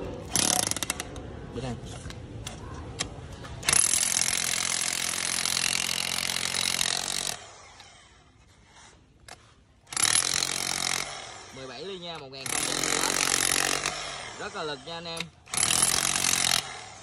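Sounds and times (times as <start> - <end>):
demolition hammer chiselling concrete: 3.6 - 7.4, 9.9 - 17.0.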